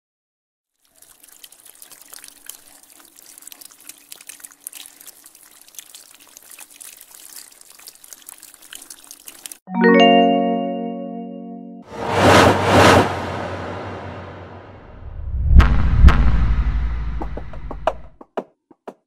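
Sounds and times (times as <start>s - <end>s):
liquid dripping and splashing: 0.7s - 9.7s.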